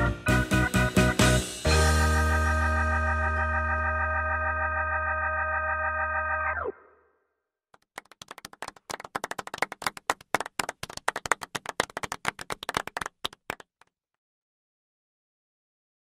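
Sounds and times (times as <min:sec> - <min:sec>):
background music: 0:00.0 - 0:06.6
people applauding: 0:07.8 - 0:13.9.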